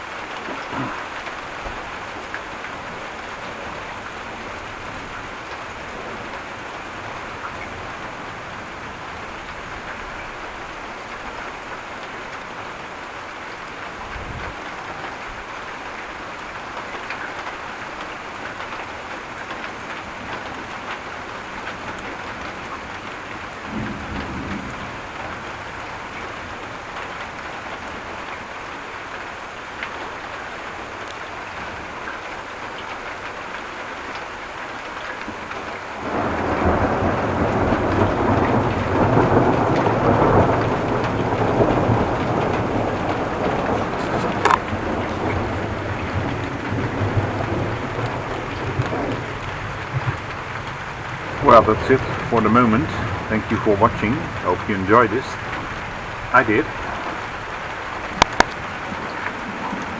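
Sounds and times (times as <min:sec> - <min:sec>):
thunder rumbles: 0:00.0 - 0:11.7, 0:19.5 - 0:28.4, 0:35.3 - 0:59.9
steady rain: 0:00.0 - 0:59.9.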